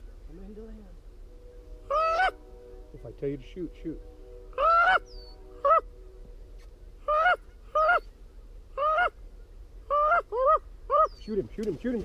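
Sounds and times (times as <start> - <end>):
goose honking: 1.8 - 8.1.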